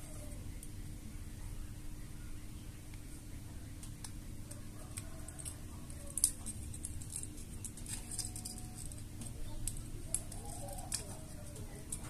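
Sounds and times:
low steady hum: 0.0s - 12.0s
solder crackling ticks: 3.8s - 12.0s.

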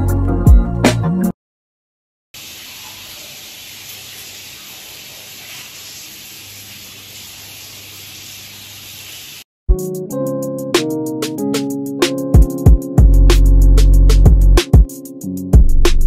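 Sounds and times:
shower water hissing: 2.4s - 9.5s.

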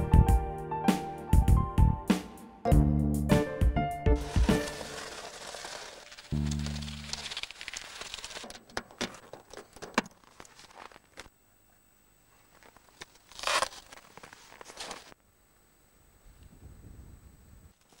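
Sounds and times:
rustling: 4.2s - 11.3s, 12.3s - 15.2s.

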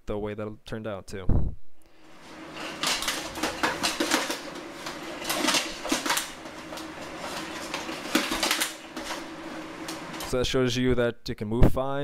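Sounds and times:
plate armor clanking: 2.1s - 10.4s.

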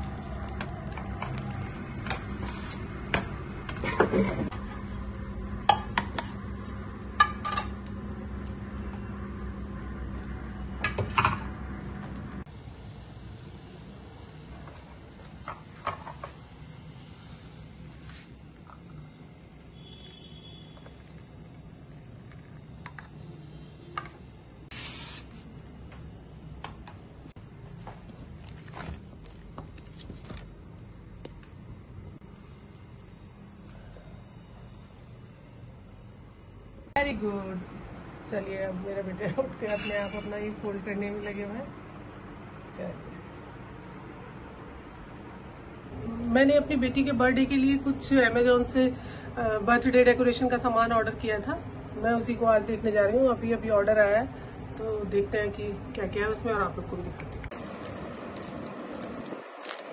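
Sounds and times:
short hiss: 24.7s - 25.3s.

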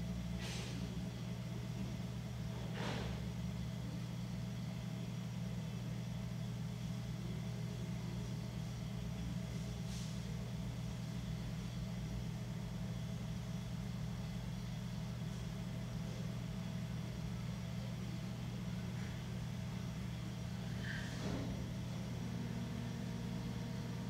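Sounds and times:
potter's wheel motor humming: 10.9s - 24.0s.

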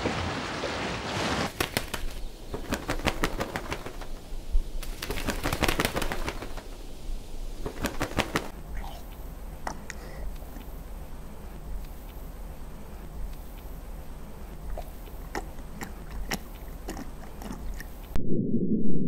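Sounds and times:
wind and sea: 0.0s - 8.6s
wings flapping and rustling: 0.0s - 8.6s.

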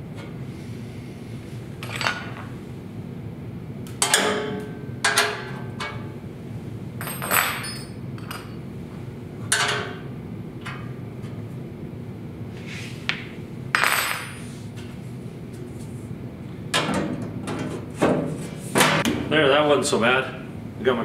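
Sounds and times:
steady low hum: 0.0s - 21.0s
tools clanking against metal: 4.0s - 6.1s, 7.0s - 8.6s, 9.5s - 10.0s.

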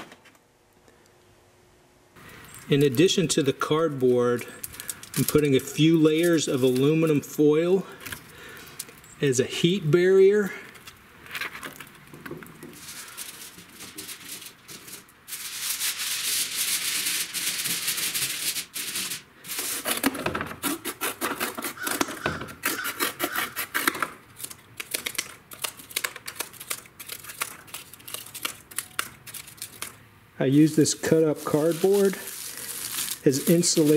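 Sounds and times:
aluminum foil crinkling: 2.3s - 9.1s, 10.3s - 33.9s
cardboard scraping: 16.4s - 25.2s, 30.6s - 33.9s
scissors snipping cardboard: 19.8s - 24.1s.

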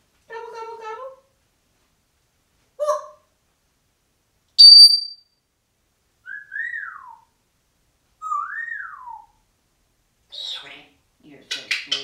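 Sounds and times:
parrot mimicking electronic beep: 4.6s - 5.2s
parrot whistles sliding in pitch: 4.6s - 5.2s.

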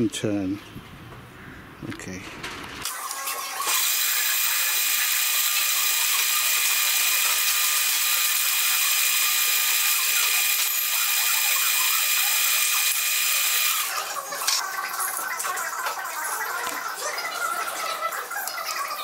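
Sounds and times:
lathe motor whine: 3.7s - 14.0s.

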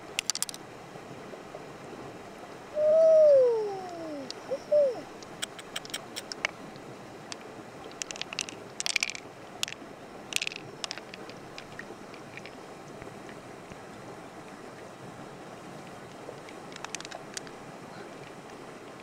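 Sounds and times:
river water hissing: 0.0s - 19.0s
mussel shells cracking: 0.1s - 0.6s, 7.9s - 12.6s, 16.7s - 17.5s.

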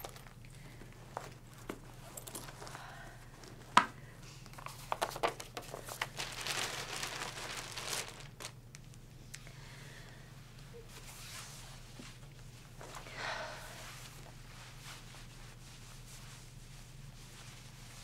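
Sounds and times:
low steady hum: 0.0s - 18.0s
material rustling: 4.7s - 8.6s.

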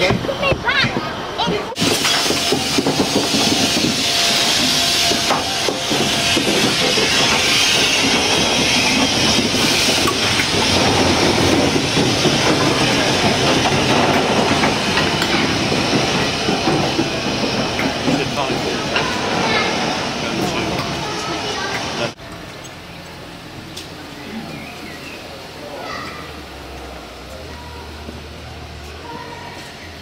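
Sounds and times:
wheels rumbling on rails: 0.0s - 30.0s
steam hissing from locomotive: 1.8s - 22.2s.

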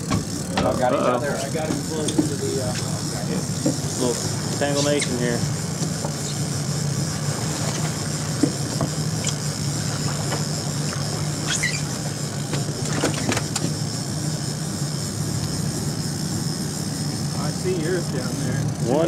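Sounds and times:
outboard motor running: 0.0s - 19.0s
water splashing along hull: 3.5s - 13.9s
short squeaks: 11.4s - 12.0s.

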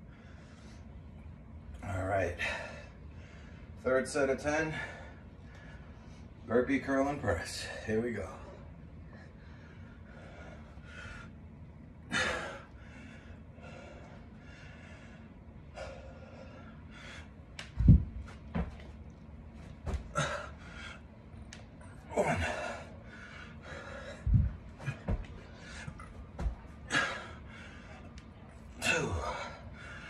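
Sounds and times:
man breathing heavily: 0.0s - 1.3s, 1.9s - 6.5s, 7.4s - 30.0s
dull thuds on carpeted floor: 17.8s - 18.9s, 24.3s - 25.4s, 26.3s - 26.7s.

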